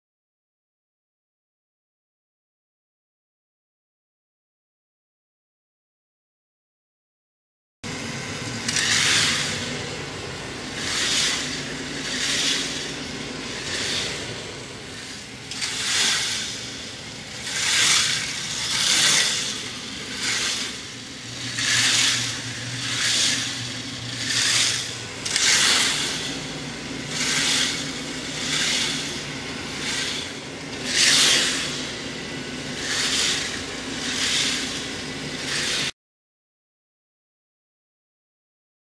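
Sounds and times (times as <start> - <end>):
motor hum: 7.8 - 35.9.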